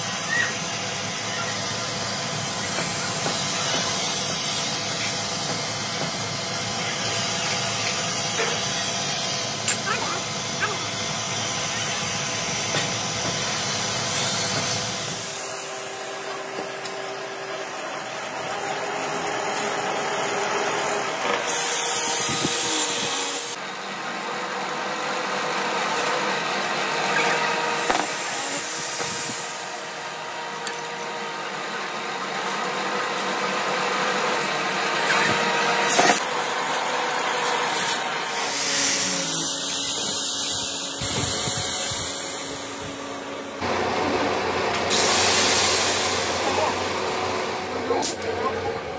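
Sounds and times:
workshop machinery noise: 0.0s - 48.9s.

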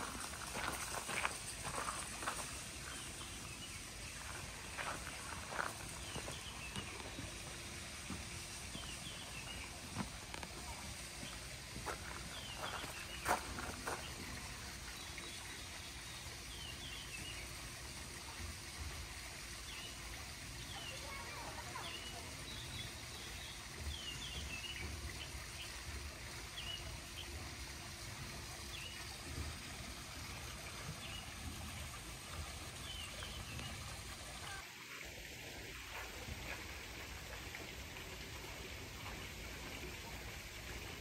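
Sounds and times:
small birds chirping: 0.0s - 17.5s, 32.8s - 34.6s
trickling water: 0.0s - 41.0s.

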